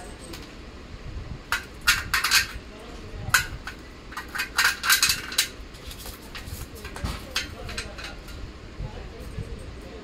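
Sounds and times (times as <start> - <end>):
metal nuts clinking on steel frame: 1.5 - 2.6, 3.3 - 5.6.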